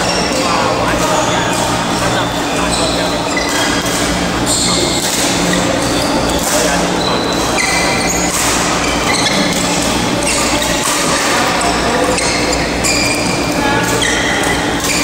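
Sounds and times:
shoes squeaking on court floor: 0.0 - 15.0
shuttlecock hits: 7.4 - 15.0.

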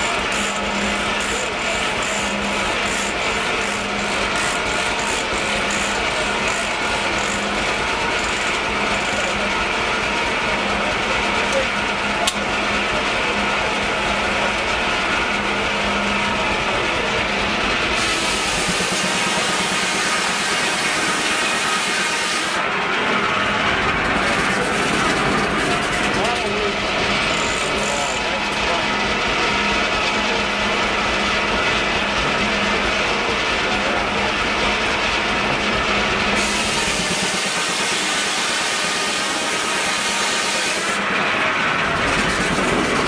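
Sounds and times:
ratchet clicking rhythmically: 0.0 - 9.5
machinery noise: 0.0 - 43.0
sawmill humming: 0.0 - 43.0.

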